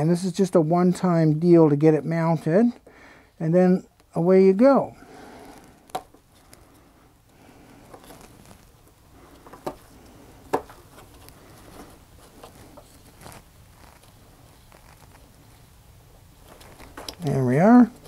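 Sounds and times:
rubbing and rustling of strap: 7.6s - 18.0s.

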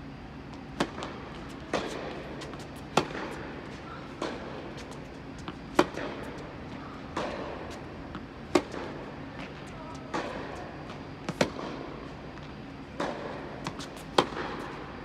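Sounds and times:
steady low hum: 0.0s - 15.0s
tennis ball bouncing: 0.6s - 3.6s, 4.2s - 6.4s, 7.0s - 14.8s
rackets striking tennis ball: 0.7s - 3.6s, 4.2s - 6.4s, 7.0s - 11.9s, 12.9s - 14.8s.

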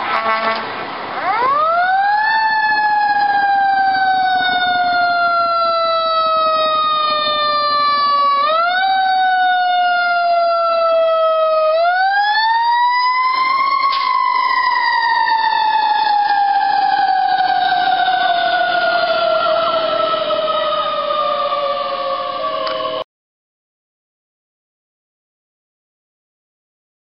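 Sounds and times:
fire engine siren wailing: 0.0s - 23.1s.

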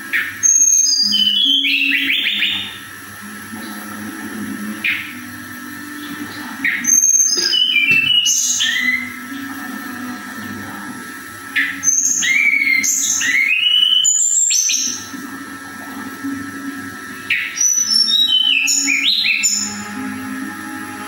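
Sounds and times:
bird whistling song: 0.0s - 3.0s, 4.7s - 9.6s, 11.5s - 15.2s, 17.2s - 20.2s.

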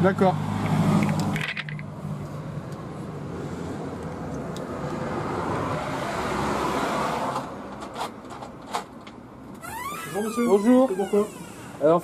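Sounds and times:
car passing by: 0.2s - 1.3s, 4.7s - 7.7s.

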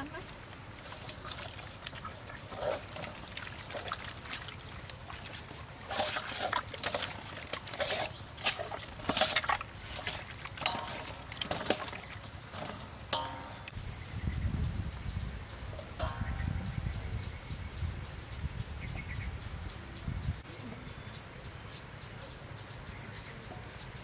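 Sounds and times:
wet squelches of meat kneaded: 0.4s - 13.1s.

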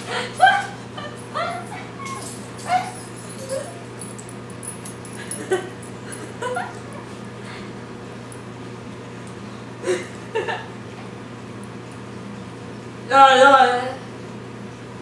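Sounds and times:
laughter and squeals: 0.0s - 2.9s, 6.2s - 7.2s.

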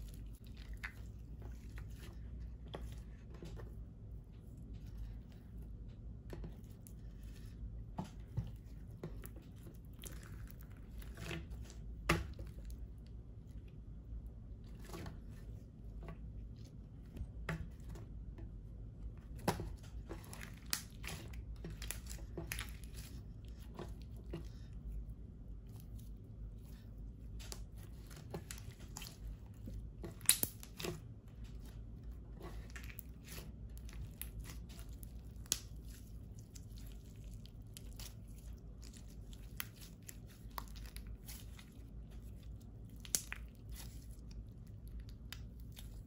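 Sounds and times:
slime squelching and popping: 19.3s - 24.7s, 25.4s - 46.0s.

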